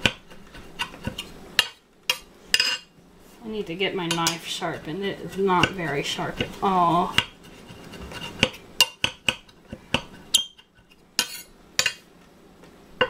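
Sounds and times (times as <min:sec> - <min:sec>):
knife chopping on stone board: 0:00.0 - 0:02.8, 0:08.3 - 0:10.1.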